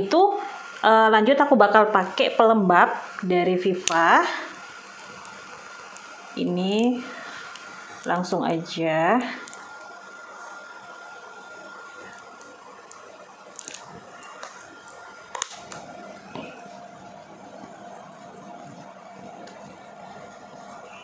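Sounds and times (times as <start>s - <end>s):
faint steady hum: 0.0s - 21.0s
fingers rubbing cream on face: 15.7s - 21.0s.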